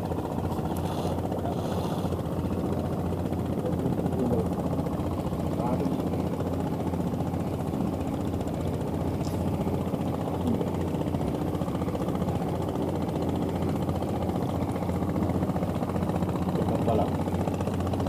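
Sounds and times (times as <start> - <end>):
boat engine low chug: 0.0 - 18.0.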